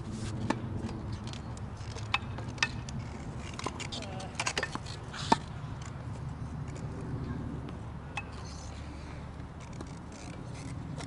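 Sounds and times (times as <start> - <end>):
racket hitting tennis ball: 3.6 - 5.6.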